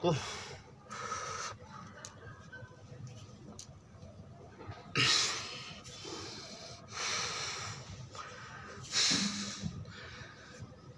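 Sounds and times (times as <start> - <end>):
man breathing forcefully: 5.0 - 10.7.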